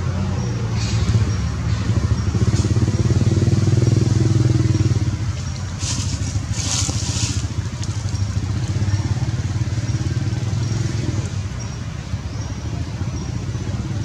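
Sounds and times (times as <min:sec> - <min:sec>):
engine running with pulsing hum: 0:00.0 - 0:14.0
dry leaves rustling: 0:01.8 - 0:11.5.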